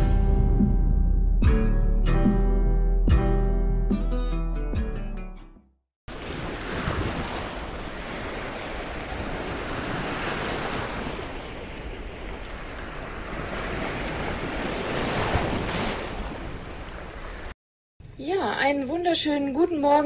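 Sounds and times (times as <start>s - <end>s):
sea surf: 6.1s - 17.6s.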